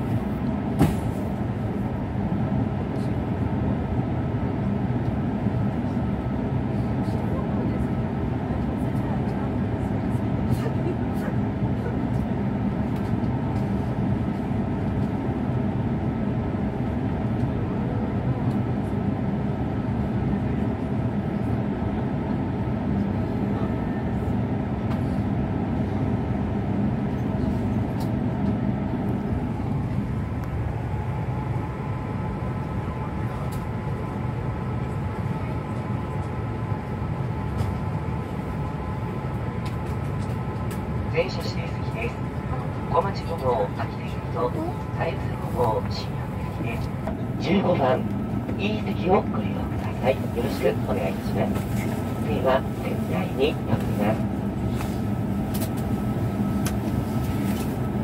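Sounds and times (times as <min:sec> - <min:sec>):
steady hum: 0:40.7 - 0:58.0.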